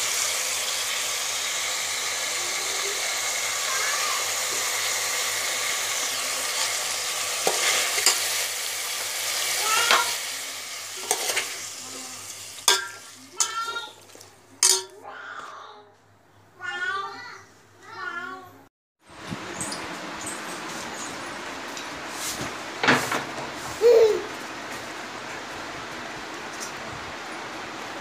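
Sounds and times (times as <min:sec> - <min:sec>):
fish sizzling in oil: 0:00.0 - 0:14.9
spoon scraping a metal pot: 0:11.0 - 0:11.6, 0:14.6 - 0:15.0.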